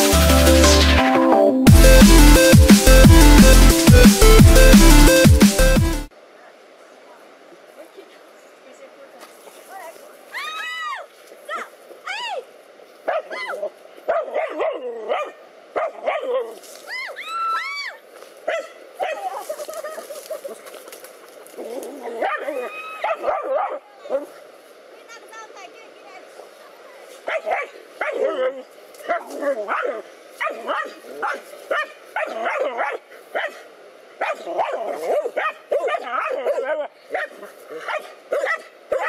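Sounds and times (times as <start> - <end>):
dog yelping: 13.1 - 16.6, 21.6 - 24.3, 27.3 - 33.6, 34.2 - 39.0
dogs barking: 13.1 - 16.6, 18.4 - 19.5, 22.0 - 24.3, 27.2 - 33.6, 34.2 - 39.0.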